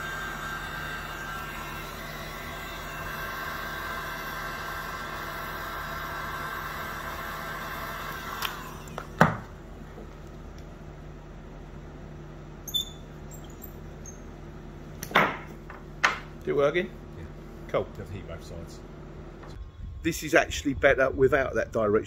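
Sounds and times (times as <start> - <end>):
heat gun fan whine: 0.0 - 21.9
heat gun thumping down: 8.2 - 9.6.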